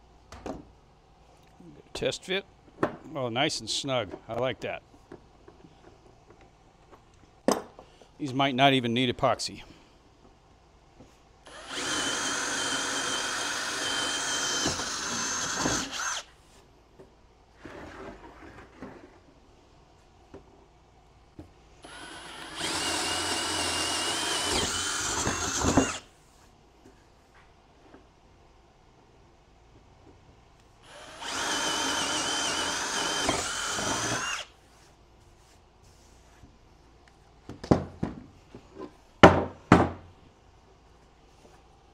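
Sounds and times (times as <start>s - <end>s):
power drill boring into wood: 11.5s - 16.3s, 21.8s - 26.0s, 30.8s - 34.5s.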